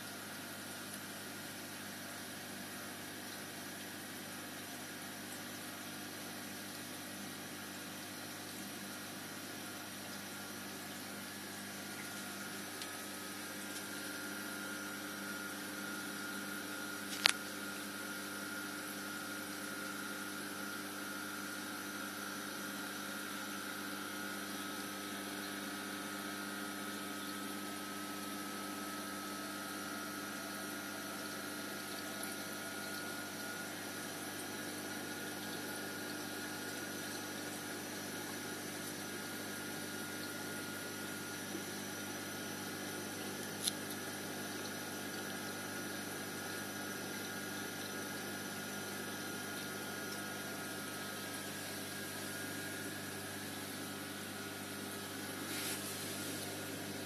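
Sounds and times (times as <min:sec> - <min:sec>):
aquarium pumps humming: 0:00.0 - 0:57.0
running water: 0:31.2 - 0:53.6.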